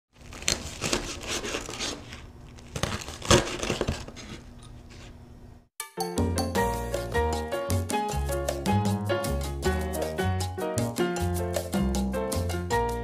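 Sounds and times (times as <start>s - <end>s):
knife crunching crispy pork skin: 0.2s - 4.4s
upbeat latin-style music: 5.8s - 13.0s.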